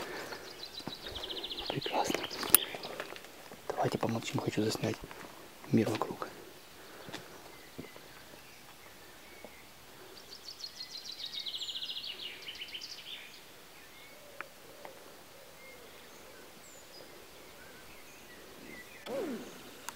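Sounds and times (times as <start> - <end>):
songbird trilling: 0.4 - 3.0, 16.6 - 19.9
faint high chirps: 18.6 - 19.9.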